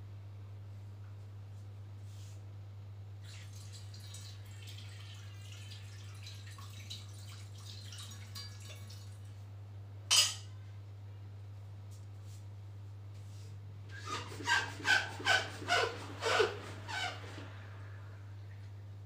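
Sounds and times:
water pouring into a glass: 3.2 - 9.3
dishware clink: 10.1 - 10.6.

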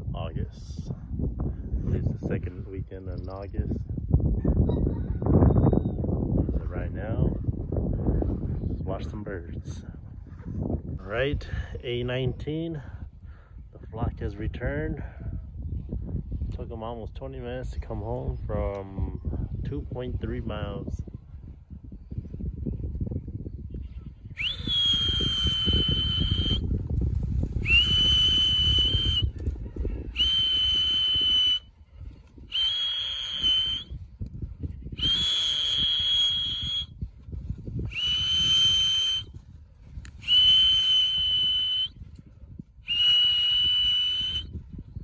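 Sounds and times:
whistle blasts with upward slide: 24.4 - 26.6, 27.6 - 29.3, 30.1 - 31.7, 32.5 - 33.9, 35.0 - 36.9, 37.8 - 39.3, 40.2 - 42.0, 42.9 - 44.5.

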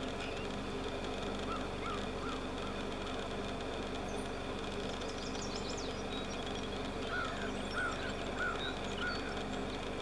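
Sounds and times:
bird calling: 1.4 - 2.8, 7.0 - 9.4.

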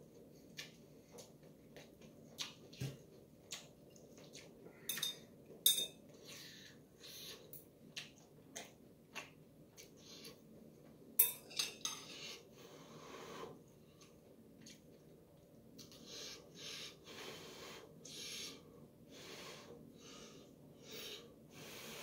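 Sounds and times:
metal chopsticks clinking: 4.9 - 6.0, 11.2 - 12.0.

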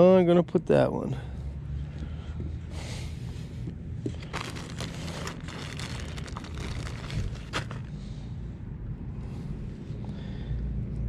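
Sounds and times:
low steady rumble: 0.0 - 11.0
plastic bag crinkling: 4.2 - 7.9.

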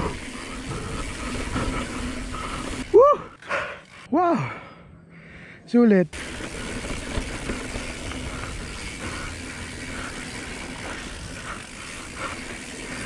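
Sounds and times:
tyres rushing on loose dirt: 0.0 - 3.0, 6.2 - 13.0
bike knocks and rattles: 6.2 - 13.0.

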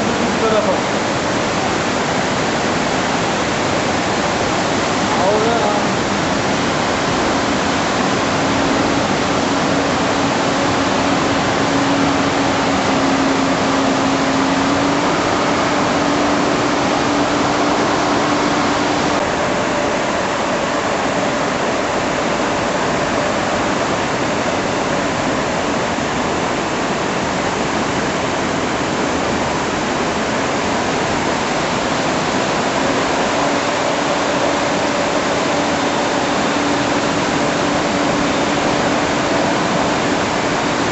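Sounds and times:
river rushing: 0.0 - 40.9.

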